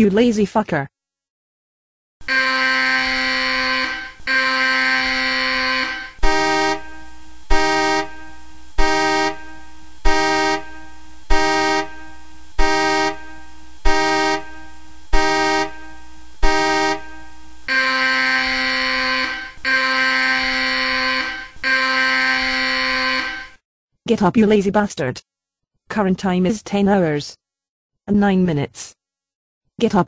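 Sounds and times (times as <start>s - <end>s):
electronic buzzing alarm tone: 2.2s - 23.6s
horn-like alarm beeps: 2.2s - 23.6s.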